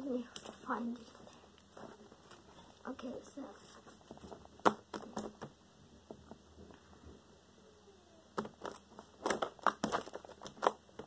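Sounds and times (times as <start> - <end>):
slime popping and crackling: 8.4 - 11.0.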